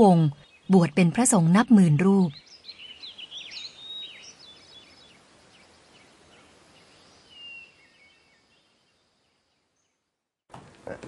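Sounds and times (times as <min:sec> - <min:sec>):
bird chirping: 0:00.0 - 0:10.1
outdoor hiss: 0:02.5 - 0:08.7.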